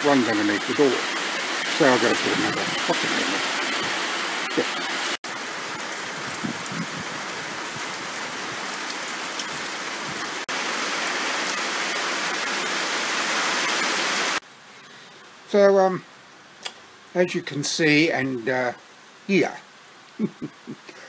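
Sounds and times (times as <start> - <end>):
heavy rain falling: 0.0 - 14.4, 19.2 - 21.0
sharp rain ticks: 0.0 - 14.5, 18.7 - 20.9.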